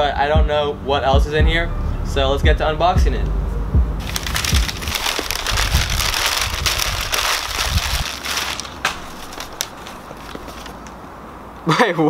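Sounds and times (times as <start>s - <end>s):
packing paper rustling: 4.0s - 11.0s.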